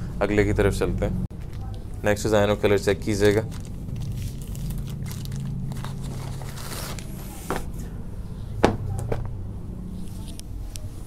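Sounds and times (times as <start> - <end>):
fabric and plastic rustling: 3.2 - 7.8.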